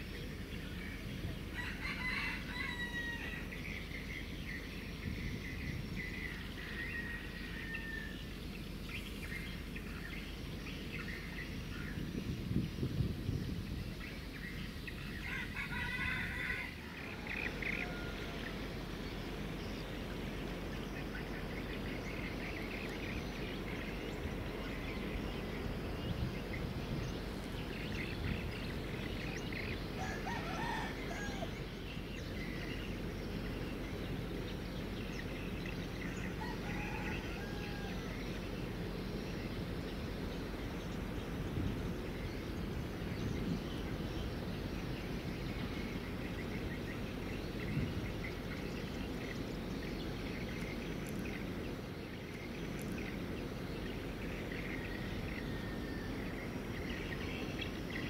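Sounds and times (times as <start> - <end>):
birds chirping: 0.0 - 58.0
low background rumble: 0.0 - 58.0
rooster crowing: 1.5 - 3.8, 6.3 - 8.4, 15.2 - 18.8, 29.6 - 31.8, 36.0 - 38.6, 54.6 - 56.4.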